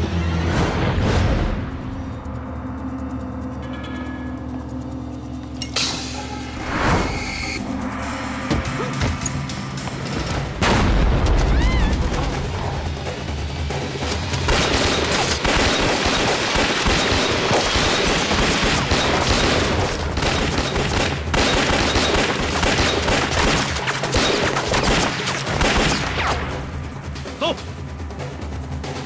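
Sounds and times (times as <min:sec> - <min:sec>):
background music: 0:00.0 - 0:29.0
pistol gunfire: 0:14.5 - 0:26.4.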